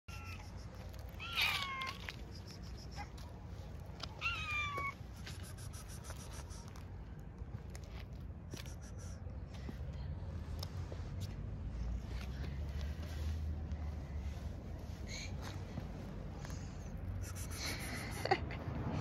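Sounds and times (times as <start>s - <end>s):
cat meowing: 0.1s - 0.5s, 1.1s - 2.2s, 4.2s - 5.0s.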